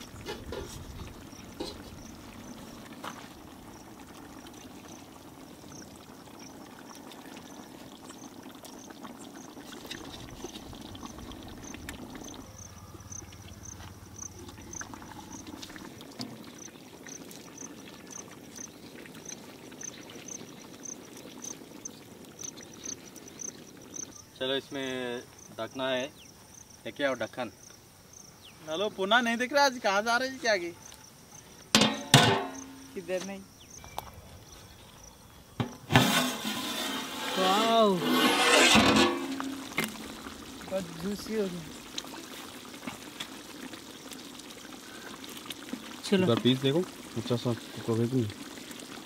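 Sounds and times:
curry bubbling in a pot: 0:00.0 - 0:25.5, 0:35.6 - 0:49.0
insect chirping: 0:00.0 - 0:49.0.

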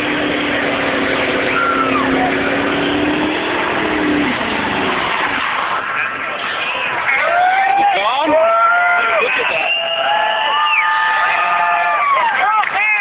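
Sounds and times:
engine at high revs: 0:00.0 - 0:06.4.

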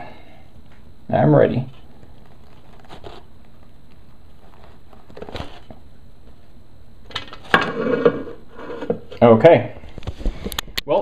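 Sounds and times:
plastic cup and paper rustling: 0:02.0 - 0:03.6.

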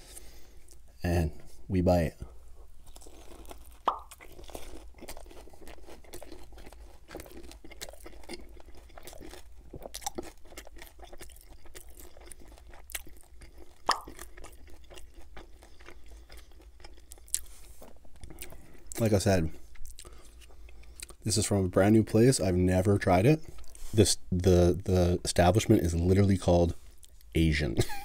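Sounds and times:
crunching and chewing spring roll: 0:02.2 - 0:22.0.

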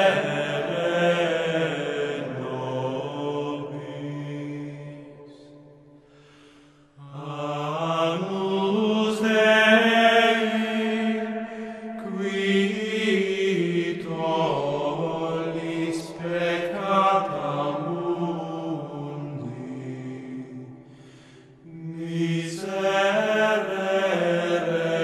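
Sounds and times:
slow chant-like vocal music: 0:00.0 - 0:25.0.

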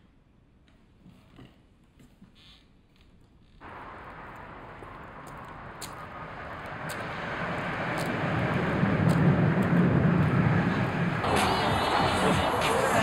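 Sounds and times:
vehicle rumble: 0:03.6 - 0:13.0.

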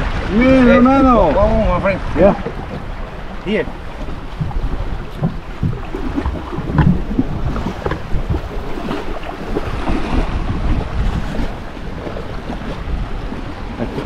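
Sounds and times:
water sloshing around boat: 0:00.0 - 0:14.0
wind buffeting microphone: 0:00.0 - 0:14.0.

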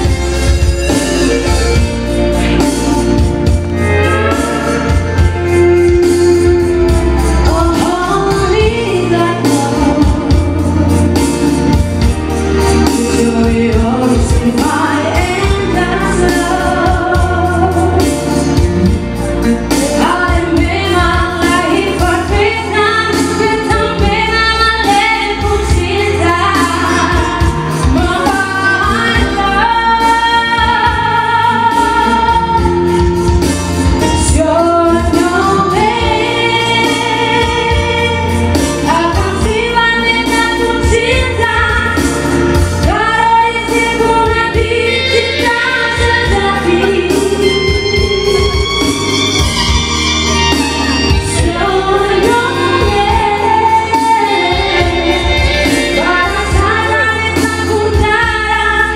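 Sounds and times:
live band accompaniment: 0:00.0 - 0:58.9
woman singing: 0:01.2 - 0:11.8, 0:12.6 - 0:58.9.

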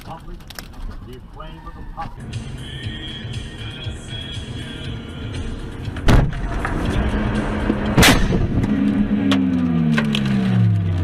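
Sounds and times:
pitched drone falling: 0:05.0 - 0:10.9
scattered clattering: 0:05.5 - 0:10.2
car crash impacts: 0:05.9 - 0:10.5.

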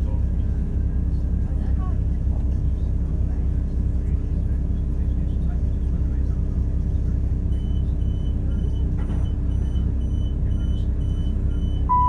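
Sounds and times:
train diesel engine rumble: 0:00.0 - 0:12.0
faint rapid high beep: 0:09.6 - 0:12.0.

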